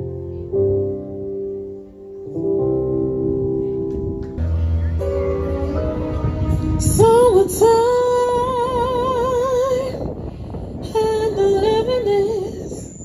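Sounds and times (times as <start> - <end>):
woman singing with vibrato: 5.9 - 13.0.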